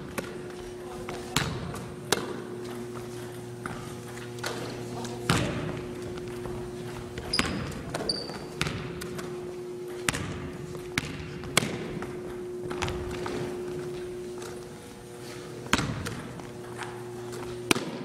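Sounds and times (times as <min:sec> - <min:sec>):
basketball bouncing in a gym: 0:00.0 - 0:18.0
steady low hum: 0:00.0 - 0:18.0
sneaker squeaks: 0:00.8 - 0:11.6.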